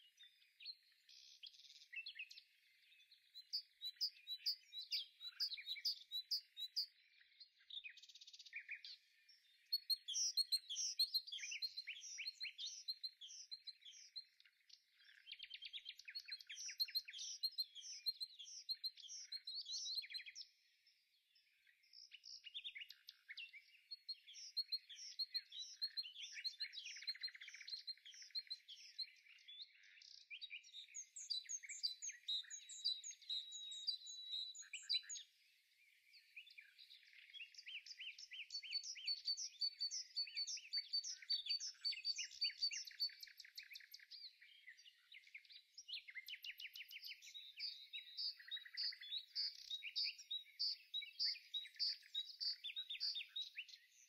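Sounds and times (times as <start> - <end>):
songbirds chirping and trilling: 0.0 - 54.0.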